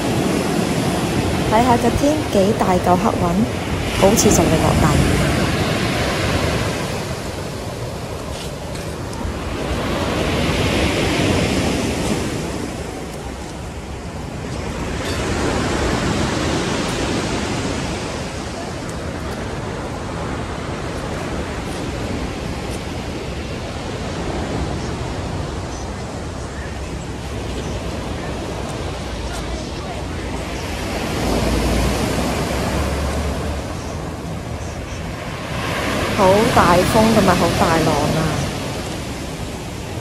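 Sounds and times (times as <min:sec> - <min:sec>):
sea surf breaking on beach: 0:00.0 - 0:40.0.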